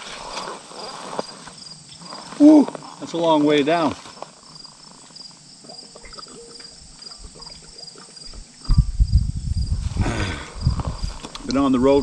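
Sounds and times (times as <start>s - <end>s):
insects chirping: 0.0s - 12.0s
wind buffeting microphone: 8.3s - 12.0s.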